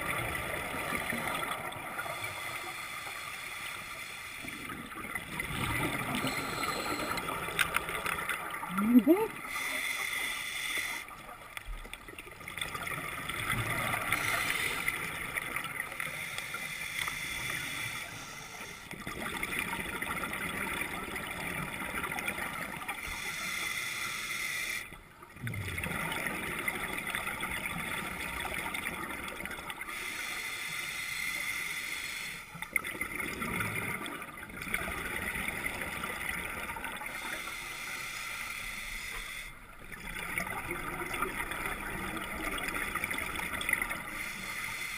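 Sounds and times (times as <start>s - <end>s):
scuba regulator hissing and bubbling: 0.7s - 4.8s, 5.4s - 11.2s, 13.3s - 19.0s, 22.9s - 25.0s, 29.8s - 32.5s, 36.6s - 39.6s, 42.4s - 44.9s.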